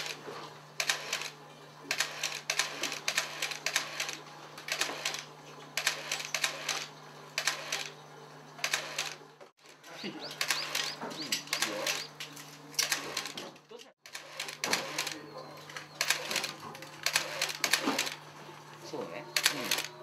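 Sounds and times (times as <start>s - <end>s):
camera shutter bursts: 0.0s - 0.2s, 0.8s - 8.0s, 8.6s - 9.2s, 10.3s - 12.2s, 12.8s - 13.4s, 14.1s - 15.2s, 15.8s - 18.2s, 19.4s - 20.0s
steady low hum: 0.0s - 20.0s.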